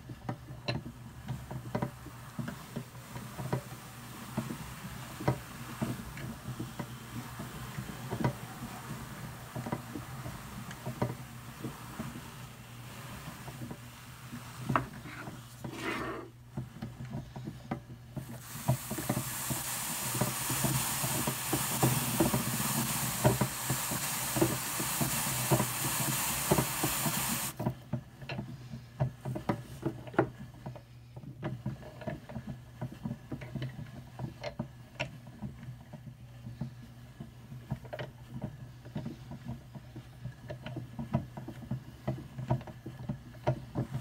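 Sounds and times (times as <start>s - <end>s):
hand-cranked drum carder ticking: 0.0s - 15.8s, 16.4s - 30.4s
stiff brush scratching on drum: 0.0s - 27.6s.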